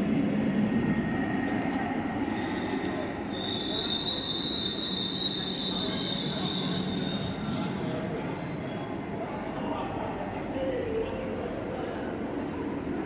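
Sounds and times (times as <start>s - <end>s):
train rolling past: 0.0s - 13.0s
high squeal from train: 0.1s - 9.7s.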